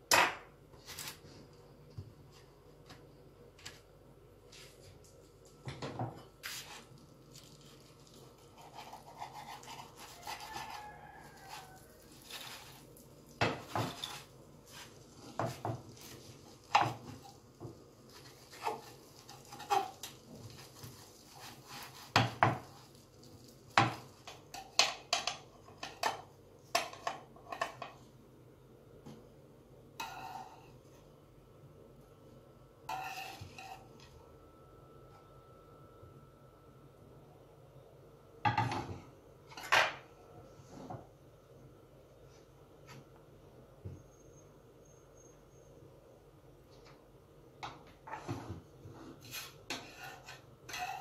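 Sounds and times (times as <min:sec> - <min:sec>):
utensil scraping frying pan: 0:08.2 - 0:23.0, 0:30.0 - 0:30.8, 0:32.8 - 0:34.0, 0:48.0 - 0:51.0.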